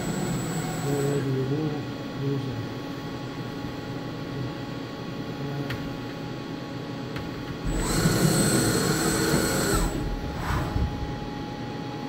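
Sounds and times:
machine humming: 0:00.0 - 0:12.0
high-pitched servo whine: 0:07.7 - 0:10.8.

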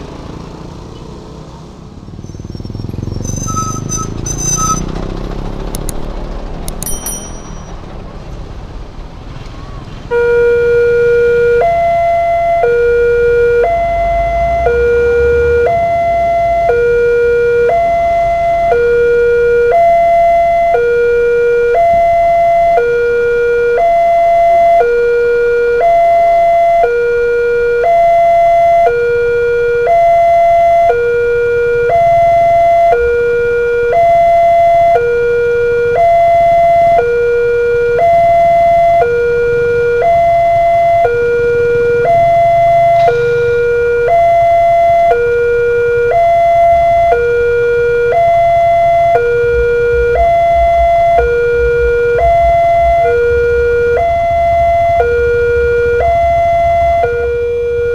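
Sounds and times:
vehicle engine rumbling past: 0:00.0 - 0:10.1, 0:38.1 - 0:57.9
two-tone level crossing alarm: 0:03.2 - 0:04.9, 0:10.1 - 0:57.9.

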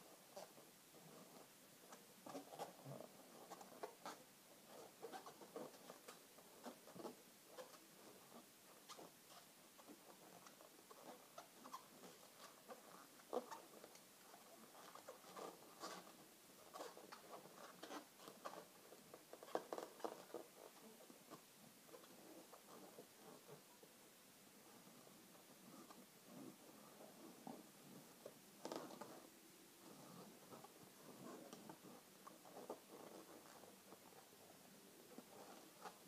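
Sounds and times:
balloons squeaking and rubbing: 0:02.3 - 0:21.0.

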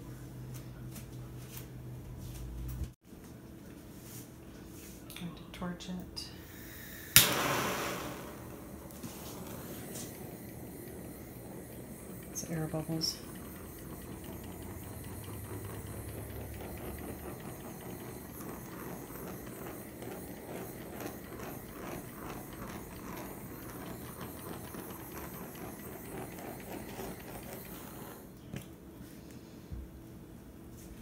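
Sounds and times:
butane torch hissing: 0:06.4 - 0:28.3
torch click: 0:07.1 - 0:14.1.

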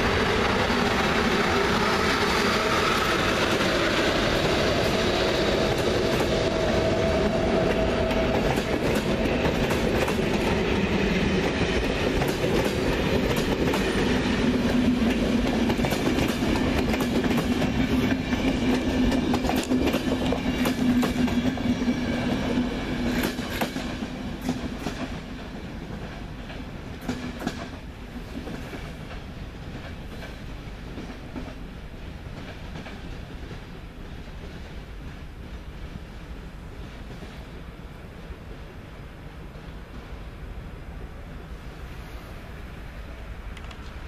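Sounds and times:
steady rumble of train: 0:00.0 - 0:44.0
train wheels clattering over rail joints: 0:01.6 - 0:25.4, 0:26.0 - 0:31.6.

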